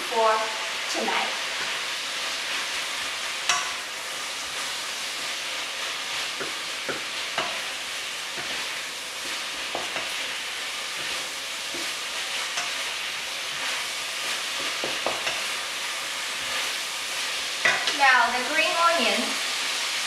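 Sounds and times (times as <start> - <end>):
food sizzling in a wok: 0.0 - 20.0
spatula knocking against pan: 3.5 - 3.8.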